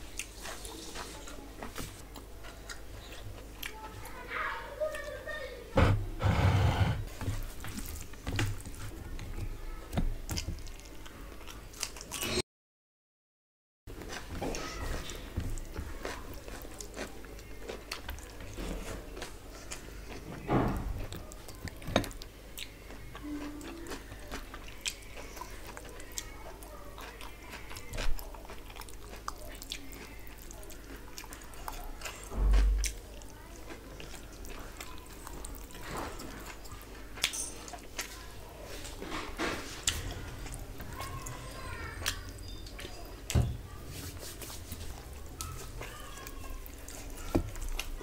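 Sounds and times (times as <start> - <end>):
wet chewing: 0.0 - 4.2, 15.6 - 20.3, 21.0 - 43.3, 44.4 - 48.0.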